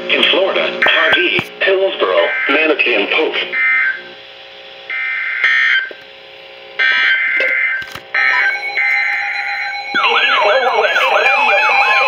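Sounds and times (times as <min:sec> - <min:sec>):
electronic alert beeps: 0:07.0 - 0:12.0.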